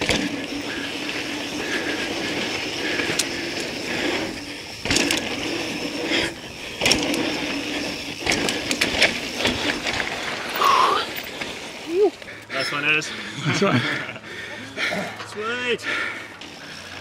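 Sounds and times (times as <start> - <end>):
bike knocking over bumps: 0.0 - 0.7, 4.8 - 5.6, 6.7 - 11.7
bike tyres on dirt trail: 0.0 - 17.0.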